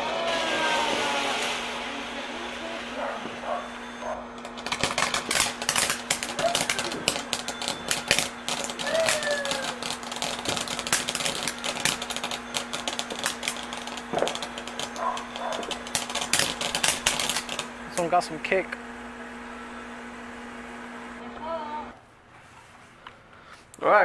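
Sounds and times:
firework hissing: 0:00.0 - 0:18.6
firework crackling: 0:00.0 - 0:21.9.

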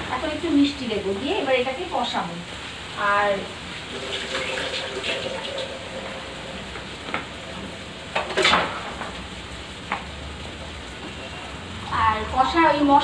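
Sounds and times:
food sizzling in a wok: 0:00.0 - 0:13.0
kitchen utensils clattering: 0:08.1 - 0:09.2.

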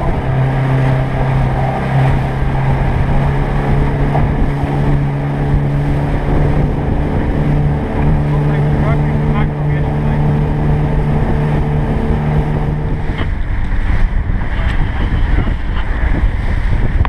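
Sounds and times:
outboard motor running: 0:00.0 - 0:17.0
wake water rushing: 0:00.0 - 0:17.0
wind: 0:00.0 - 0:17.0.

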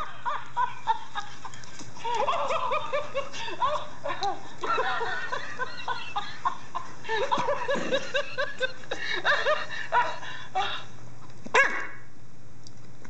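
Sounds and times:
toy monkey laughter: 0:00.0 - 0:09.6.

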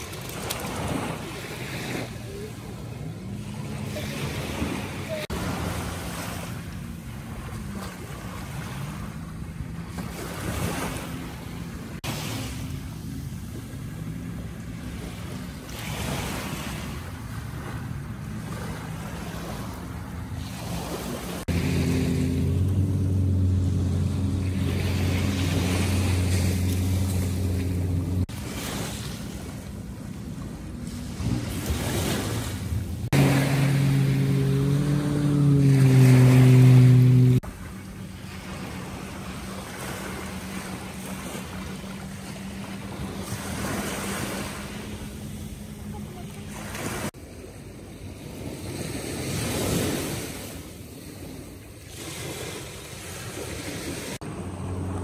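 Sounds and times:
low motor hum: 0:00.0 - 0:47.1, 0:53.1 - 0:55.0
small waves washing onto beach: 0:00.0 - 0:55.0.

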